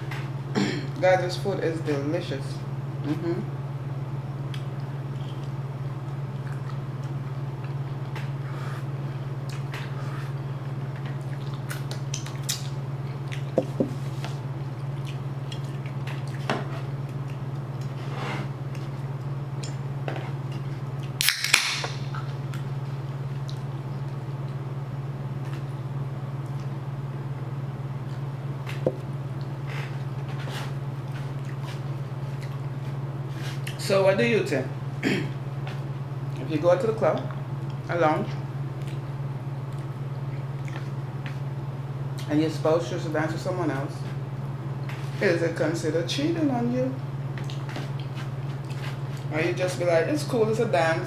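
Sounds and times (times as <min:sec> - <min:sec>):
steady low hum: 0:00.0 - 0:51.0
drink can cracked open: 0:21.2 - 0:22.0.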